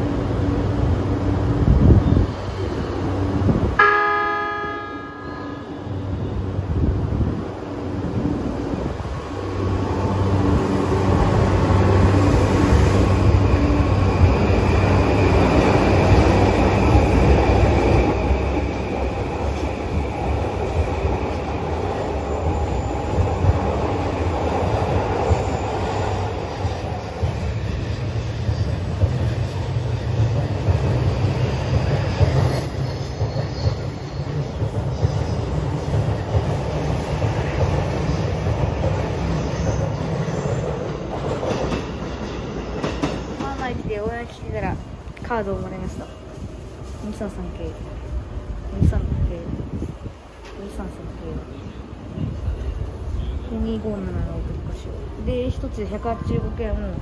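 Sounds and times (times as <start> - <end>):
train wheels clattering on rails: 10.5 - 46.1.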